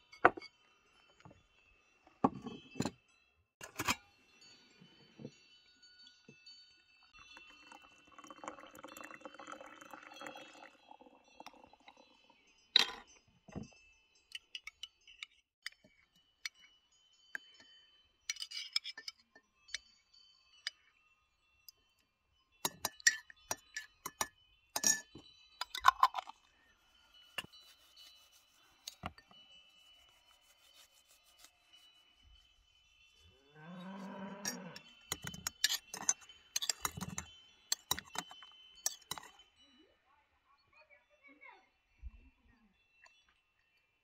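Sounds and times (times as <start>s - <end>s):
metal spoon clinking: 3.6s - 4.1s, 17.3s - 19.9s, 22.6s - 26.6s, 27.2s - 31.9s, 34.4s - 39.5s
water pouring into a mug: 7.2s - 12.4s.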